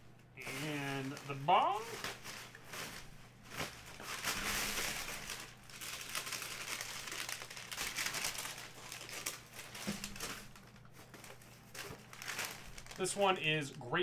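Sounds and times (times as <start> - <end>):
paper and bag crinkling: 0.4 - 14.0.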